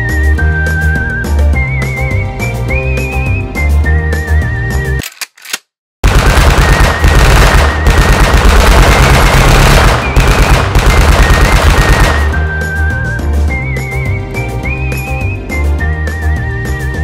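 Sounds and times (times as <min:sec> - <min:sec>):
whistled tune: 0:00.0 - 0:05.0, 0:09.8 - 0:17.0
machine-gun fire: 0:06.0 - 0:12.4.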